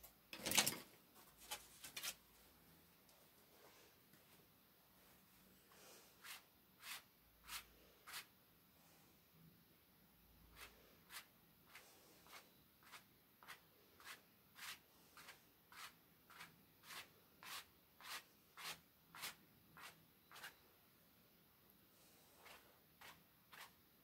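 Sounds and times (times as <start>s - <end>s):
paintbrush swishing: 5.7s - 8.3s, 10.5s - 20.6s, 22.3s - 23.8s.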